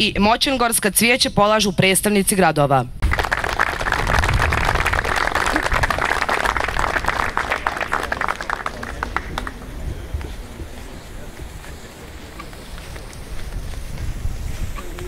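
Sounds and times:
crowd applauding: 0:03.0 - 0:13.6.

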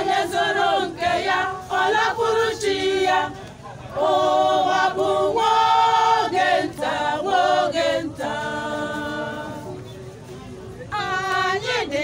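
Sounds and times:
choir singing unaccompanied: 0:00.0 - 0:10.2, 0:10.8 - 0:12.0.

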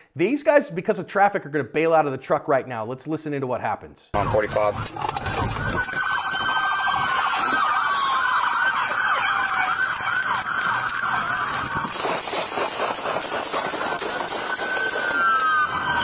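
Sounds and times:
police sirens wailing and yelping: 0:04.2 - 0:16.0.

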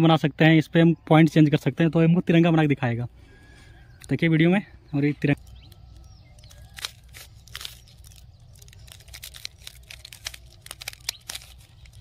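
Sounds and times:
puzzle cube clicking: 0:08.7 - 0:12.0.

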